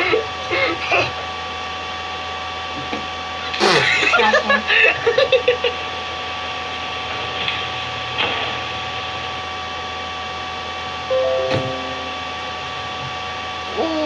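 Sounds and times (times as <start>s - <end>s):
thin constant whine: 4.1s - 13.9s.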